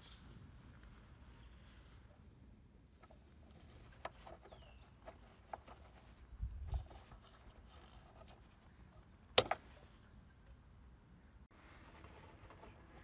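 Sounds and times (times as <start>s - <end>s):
plastic ticks and rubbing: 3.0s - 8.7s.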